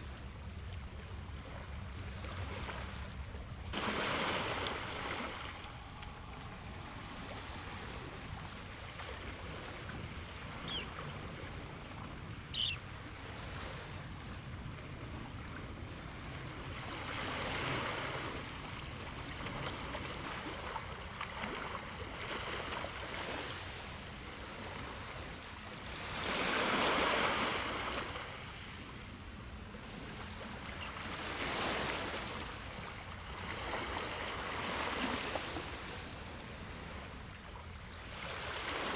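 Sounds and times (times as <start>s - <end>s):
small waves on pebbly shore: 3.7s - 11.6s, 15.9s - 28.8s, 29.8s - 37.1s, 38.0s - 38.9s.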